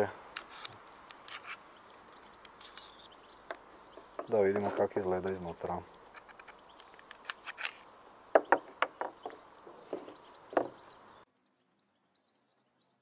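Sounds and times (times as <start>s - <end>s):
clicks of toy gun being dismantled: 6.2s - 7.8s.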